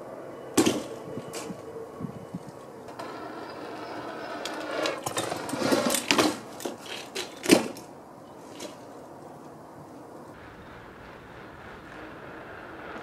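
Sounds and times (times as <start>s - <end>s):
bike clicks and rattles: 2.9s - 7.9s
bike wheels rolling over concrete: 2.9s - 8.9s, 10.3s - 13.0s.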